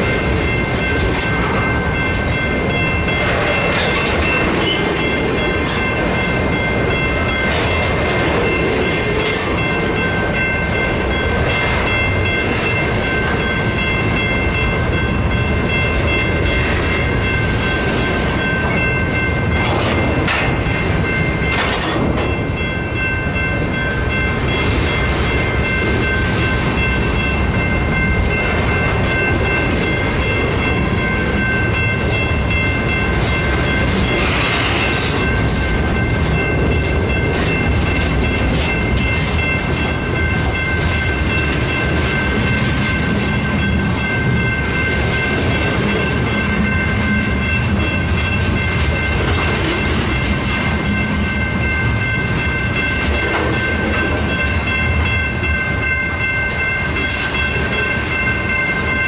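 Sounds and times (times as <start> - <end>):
freight train rumbling past: 0.0 - 59.0
wheels clicking over rail joints: 15.6 - 23.1.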